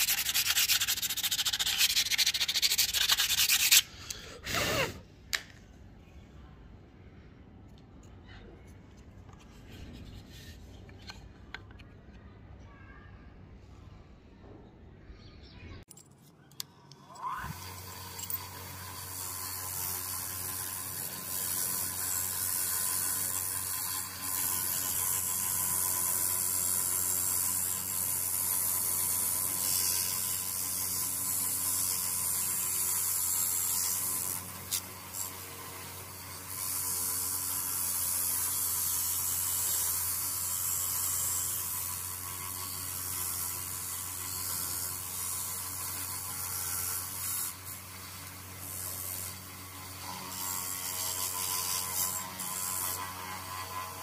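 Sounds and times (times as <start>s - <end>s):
wire wheel motor humming: 16.6s - 54.0s.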